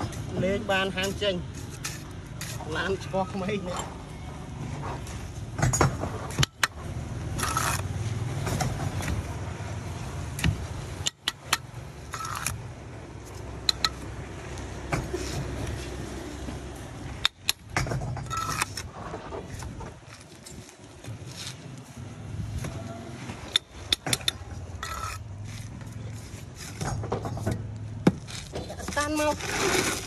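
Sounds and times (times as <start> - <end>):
trowel clinking against bricks: 7.4 - 7.8, 11.0 - 12.6, 13.6 - 14.0, 17.2 - 18.8, 23.4 - 25.3
trowel scraping mortar: 7.4 - 7.9, 11.0 - 12.6, 18.2 - 20.5, 23.5 - 26.8, 28.4 - 30.0.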